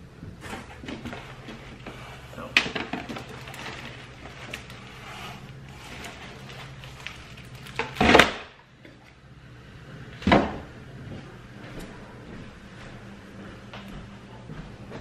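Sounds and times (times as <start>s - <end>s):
loud knocks of items set down: 7.8s - 8.6s.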